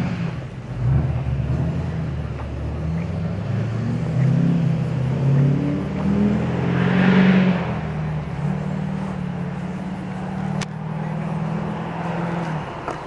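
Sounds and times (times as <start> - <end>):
engines idling: 0.0 - 13.0.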